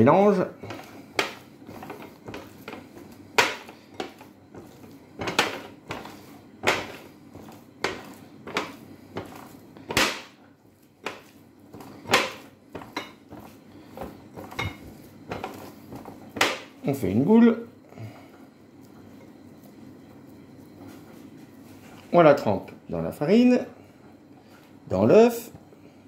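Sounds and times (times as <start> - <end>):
hand mixing meat in glass bowl: 0.0 - 17.6.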